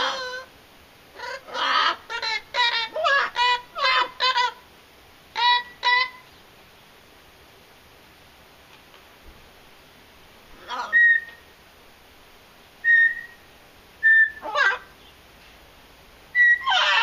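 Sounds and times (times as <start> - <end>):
parrot squawking: 0.0 - 0.5, 1.2 - 4.6, 5.3 - 6.2, 10.6 - 11.4, 12.8 - 13.4, 14.0 - 15.0, 16.3 - 17.0
parrot whistling: 10.7 - 11.4, 12.8 - 13.4, 14.0 - 14.8, 16.3 - 17.0.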